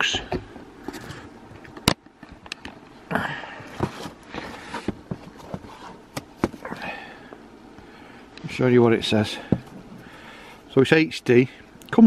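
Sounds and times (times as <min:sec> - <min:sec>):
cardboard box handling: 0:03.7 - 0:06.7.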